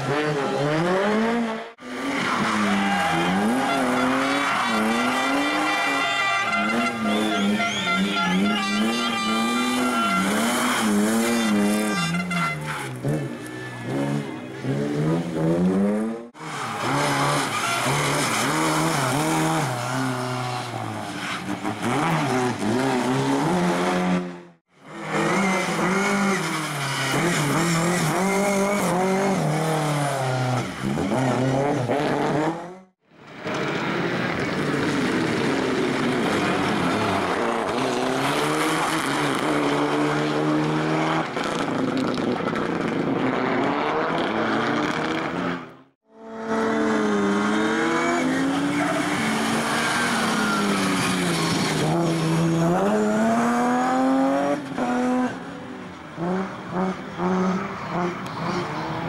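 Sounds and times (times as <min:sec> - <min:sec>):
rally car engines revving: 0:00.0 - 0:59.0
tyre squeal: 0:47.9 - 0:52.3.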